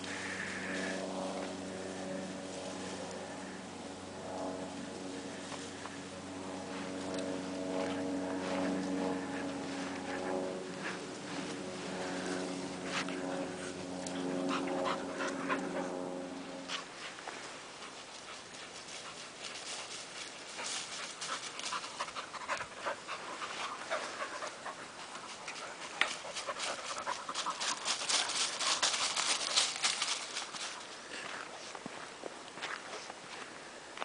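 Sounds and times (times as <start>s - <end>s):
engine hum: 0.0s - 34.0s
steps crackling through dry leaves: 0.0s - 34.0s
dogs panting: 7.7s - 31.3s.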